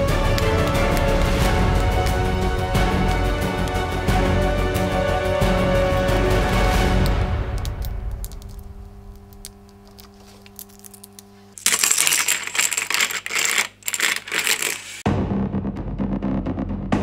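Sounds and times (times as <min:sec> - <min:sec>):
background music: 0:00.0 - 0:08.7
plastic track links clattering: 0:09.4 - 0:15.0.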